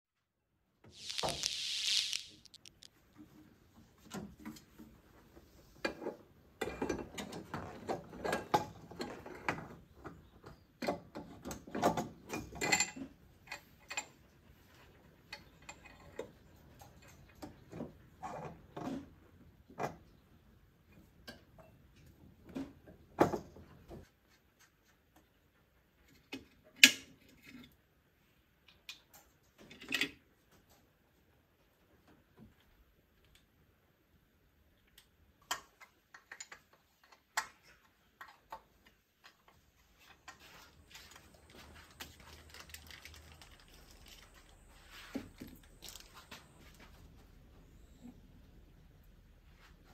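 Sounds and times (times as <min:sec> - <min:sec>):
short high-pitched sound: 0:01.0 - 0:02.9.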